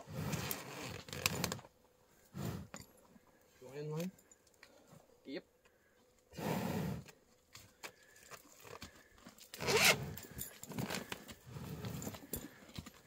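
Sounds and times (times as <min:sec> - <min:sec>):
bull breathing heavily: 0:00.0 - 0:03.6, 0:05.7 - 0:13.0
rope clicking and rubbing: 0:08.6 - 0:10.0.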